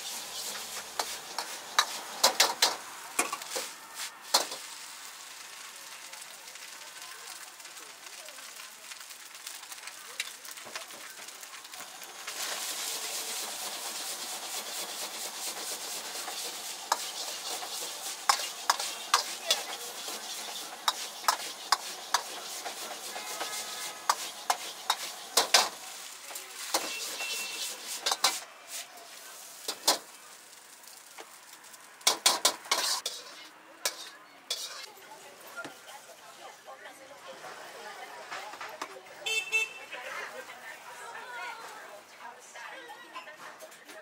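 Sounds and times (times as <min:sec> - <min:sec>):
metal ladle scraping a wok: 0:00.0 - 0:05.0, 0:11.7 - 0:28.9, 0:32.0 - 0:34.9
rice sizzling in a wok: 0:00.0 - 0:42.8.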